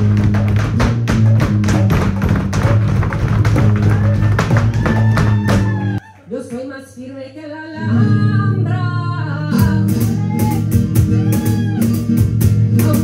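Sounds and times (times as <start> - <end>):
dance shoes tapping on stage: 0.0 - 6.0
flamenco music: 0.0 - 7.0, 7.7 - 13.0.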